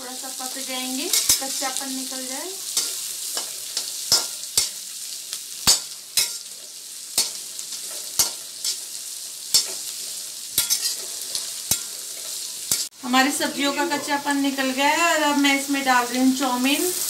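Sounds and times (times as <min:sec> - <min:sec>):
vegetables sizzling in a pan: 0:00.0 - 0:17.0
metal spatula scraping a pan: 0:01.0 - 0:01.8, 0:02.6 - 0:12.9.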